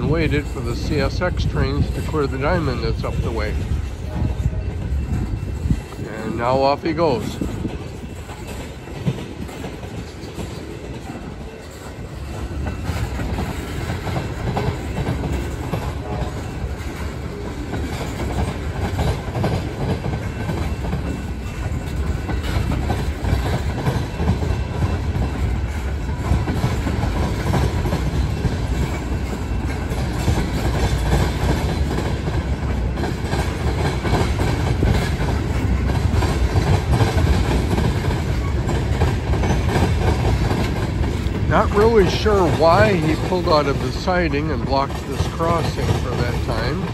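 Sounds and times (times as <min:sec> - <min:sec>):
train wheels rumbling on rails: 0:00.0 - 0:46.9.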